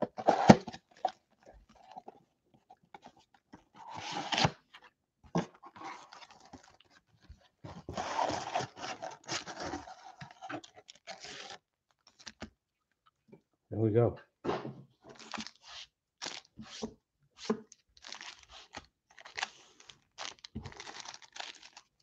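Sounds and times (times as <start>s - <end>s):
plastic shrink-wrap crinkling: 8.1s - 12.4s, 15.2s - 16.6s, 17.7s - 22.0s.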